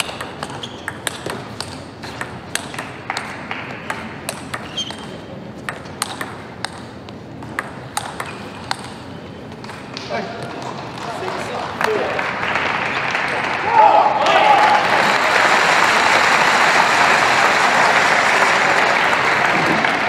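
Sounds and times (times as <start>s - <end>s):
ping pong ball clicks: 0.0s - 9.8s
steady background noise: 0.0s - 20.0s.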